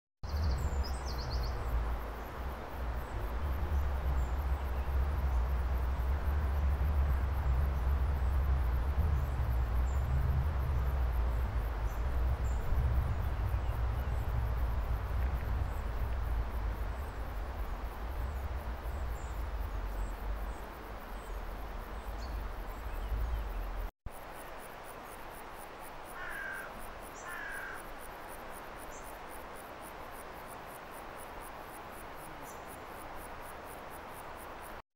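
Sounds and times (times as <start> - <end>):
wind rumble on microphone: 0.2 - 23.9
insects chirping: 0.2 - 34.8.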